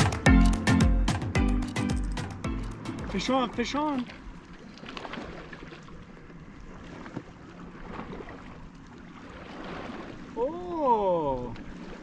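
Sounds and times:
wind: 0.0s - 12.0s
small waves lapping on rocks: 3.0s - 12.0s.

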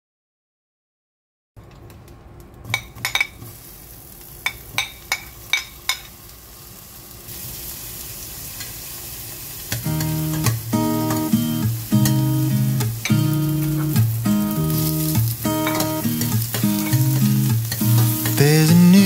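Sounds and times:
ginger sizzling in hot oil: 3.1s - 19.0s
metal spoon clicking on pan: 4.4s - 6.1s, 15.6s - 18.4s.

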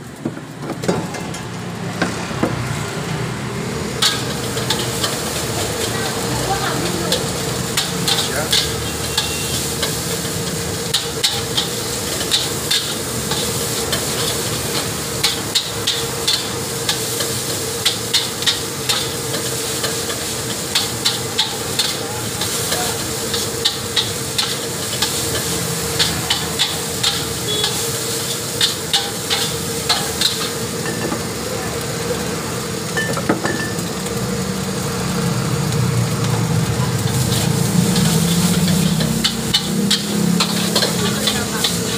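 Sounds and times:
food sizzling: 0.0s - 41.9s
metal spatula scraping a wok: 3.9s - 31.0s, 37.0s - 41.9s.

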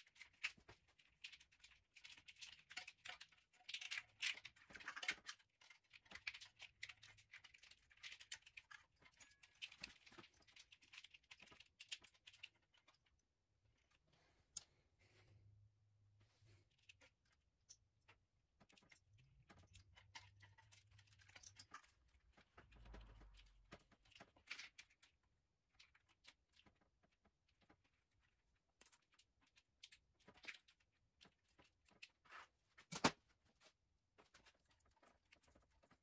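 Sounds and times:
wires and connectors handled: 0.0s - 15.2s.

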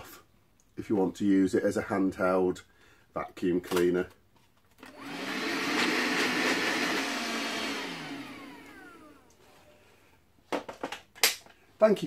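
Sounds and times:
handheld vacuum running: 4.8s - 9.8s
motor spinning down whine: 5.0s - 9.3s.

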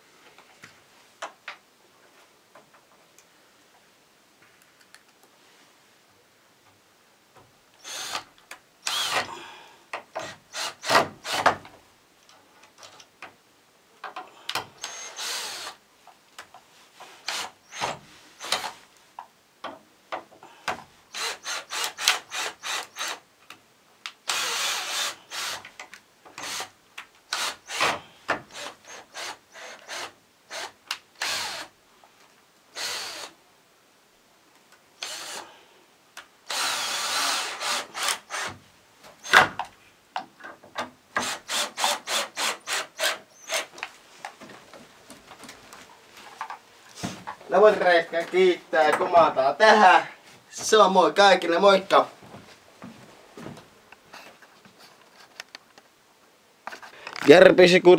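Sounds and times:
cordless drill drilling wood: 7.8s - 9.3s, 10.2s - 11.6s, 14.5s - 15.8s, 17.2s - 18.8s, 21.1s - 23.2s, 24.3s - 25.7s, 26.4s - 26.7s, 27.3s - 31.7s, 32.8s - 33.3s, 35.0s - 35.5s, 36.5s - 38.6s, 39.2s - 39.5s, 41.2s - 43.7s.

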